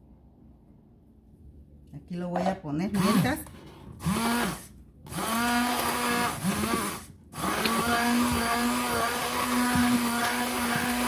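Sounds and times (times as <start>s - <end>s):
immersion blender motor running: 4.0s - 11.0s.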